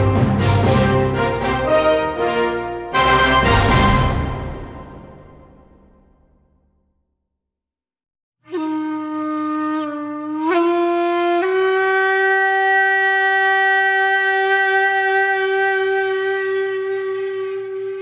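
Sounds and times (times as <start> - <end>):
solo flute-like wind instrument: 8.5 - 18.0.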